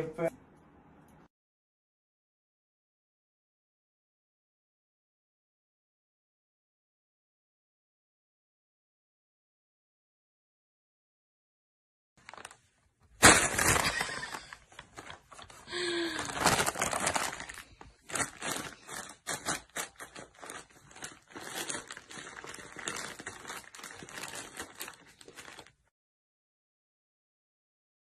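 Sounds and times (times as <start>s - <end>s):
paper bag crinkling: 12.2s - 25.9s.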